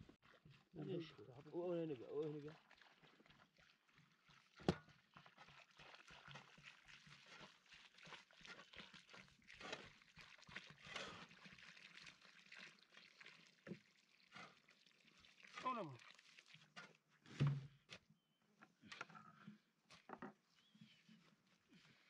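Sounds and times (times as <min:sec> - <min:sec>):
water pouring onto soil: 0:00.0 - 0:17.4.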